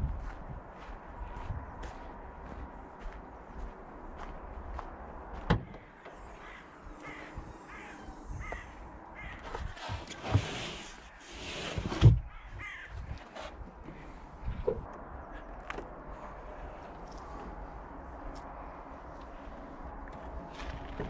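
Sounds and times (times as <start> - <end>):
footsteps crunching on snow: 0.0 - 5.4.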